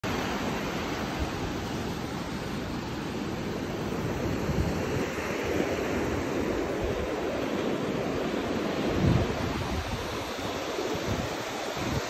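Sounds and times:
surf washing up beach: 0.0 - 12.0
wind rumble on microphone: 3.6 - 12.0.

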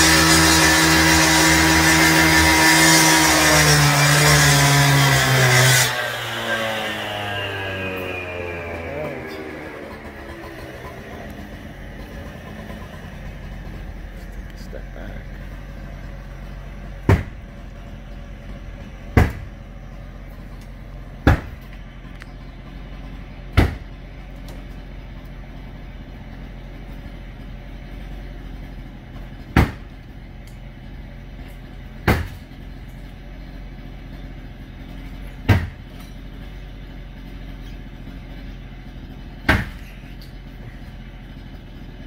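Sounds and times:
heavy machine engine running: 0.0 - 42.0
impact bangs on structure: 17.0 - 17.6, 19.0 - 19.6, 21.2 - 21.7, 23.5 - 24.0, 29.5 - 30.0, 32.0 - 32.5, 35.4 - 36.0, 39.4 - 39.9.

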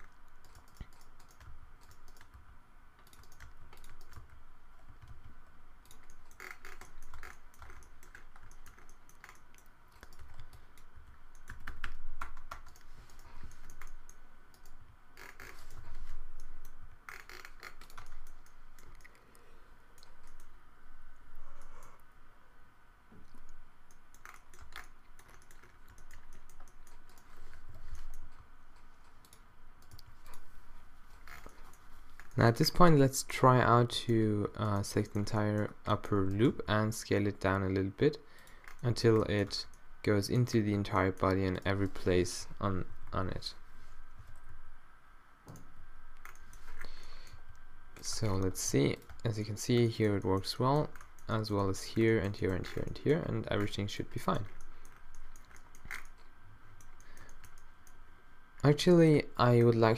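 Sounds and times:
keyboard typing: 0.0 - 19.2, 20.0 - 20.5, 23.3 - 30.5, 48.0 - 58.0
faint steady hum: 0.0 - 59.9.

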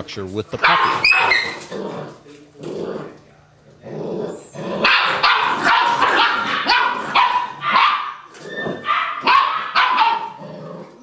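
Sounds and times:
puppies barking and yapping: 0.6 - 1.8, 4.3 - 11.0.

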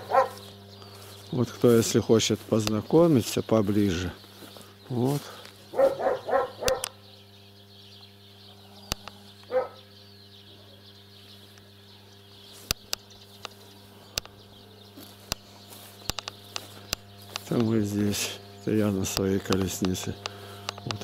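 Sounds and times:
animal call: 0.0 - 0.5, 5.7 - 7.0, 8.5 - 10.9
low hum: 0.0 - 21.0
sharp clicks: 6.6 - 7.0, 8.9 - 9.2, 12.6 - 14.4, 16.0 - 17.7, 19.1 - 21.0.

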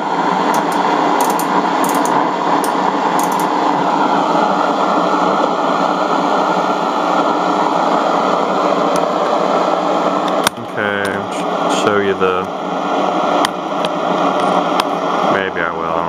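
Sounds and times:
radio static hiss: 5.8 - 16.0.

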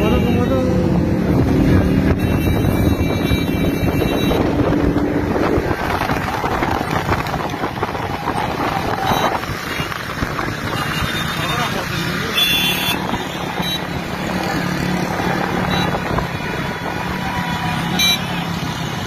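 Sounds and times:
car and motorcycle engines: 0.0 - 19.0
wind rushing over microphone: 0.7 - 11.1.

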